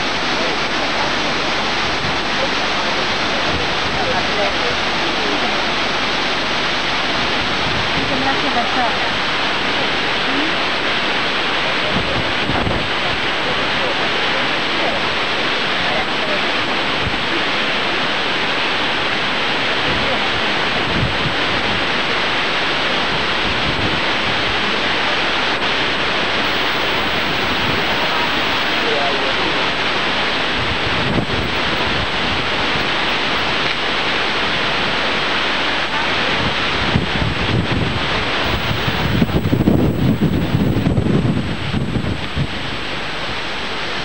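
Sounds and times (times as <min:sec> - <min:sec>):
faint voices: 0:00.0 - 0:06.4, 0:11.4 - 0:17.9, 0:26.4 - 0:29.8, 0:30.6 - 0:34.0, 0:38.4 - 0:40.9
steady rushing noise: 0:25.7 - 0:29.5, 0:30.4 - 0:42.8.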